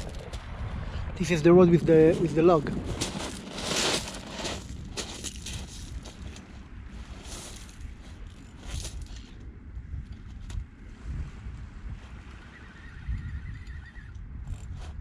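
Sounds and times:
wind buffeting microphone: 0.0 - 15.0
footsteps on shingle: 1.2 - 9.4.

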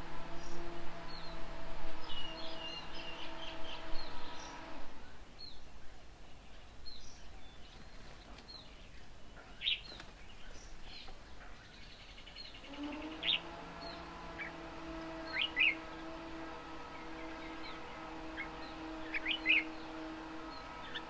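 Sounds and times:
low hum: 0.0 - 5.9, 12.4 - 21.0
small birds chirping: 0.0 - 21.0.

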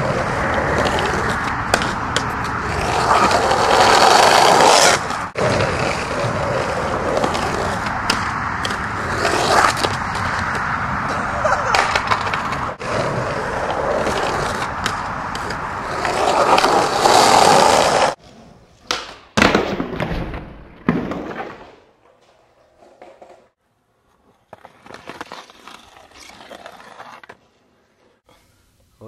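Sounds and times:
skateboard clacking on concrete: 0.0 - 5.1, 11.4 - 12.8
skateboard wheels rolling on pavement: 0.0 - 28.4.

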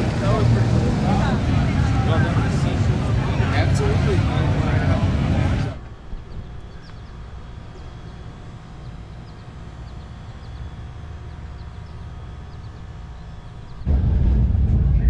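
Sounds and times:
low rumble: 0.0 - 15.0
small birds chirping: 5.8 - 13.9.

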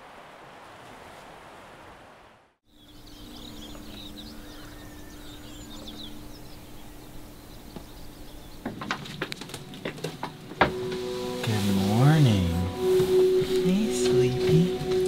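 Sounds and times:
small birds chirping: 2.7 - 10.5
low hum and hiss: 2.7 - 15.0.

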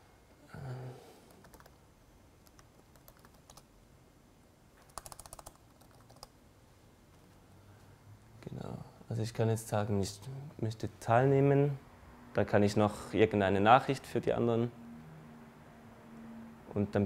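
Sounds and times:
laptop keyboard typing: 1.3 - 1.8, 2.4 - 3.7, 4.8 - 6.3.

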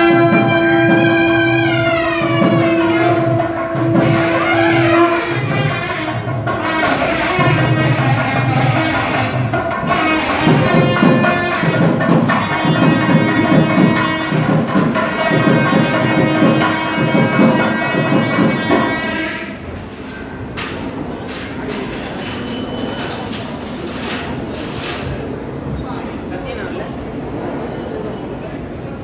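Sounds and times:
sustained melody: 0.0 - 19.7
repeated drum strokes: 0.0 - 25.6.

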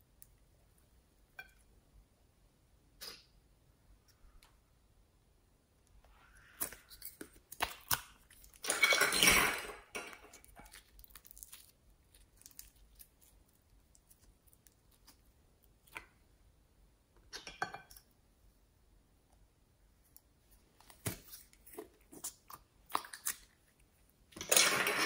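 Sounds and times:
slime squishing: 6.1 - 8.9, 10.3 - 16.2
sticky slime crackle: 6.4 - 8.7, 10.3 - 16.0.

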